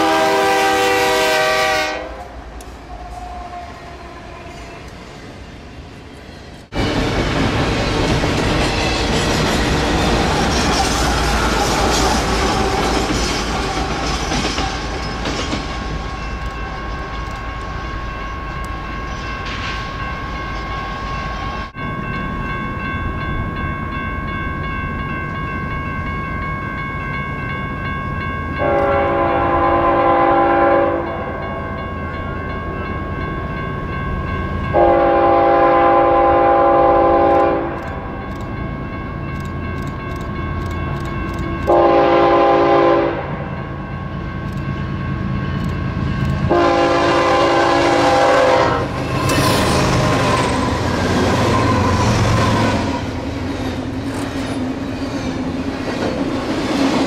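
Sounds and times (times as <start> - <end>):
train air horn blowing: 0.0 - 4.6, 28.6 - 31.2, 34.8 - 37.8, 41.7 - 43.4, 46.5 - 49.0
train rumbling and clattering past: 0.0 - 57.0
crossing bell ringing: 7.8 - 56.0.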